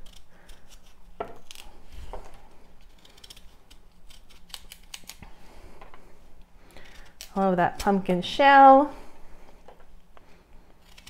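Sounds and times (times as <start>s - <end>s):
knife scraping pumpkin rind: 0.0s - 2.1s, 2.8s - 5.2s, 10.8s - 11.0s.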